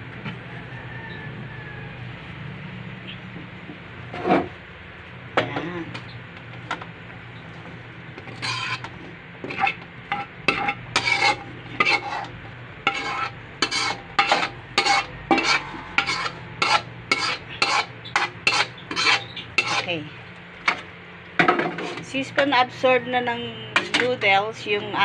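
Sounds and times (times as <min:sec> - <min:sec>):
metal spoon scraping a wok: 0:04.1 - 0:04.5, 0:08.2 - 0:22.2, 0:23.8 - 0:24.3.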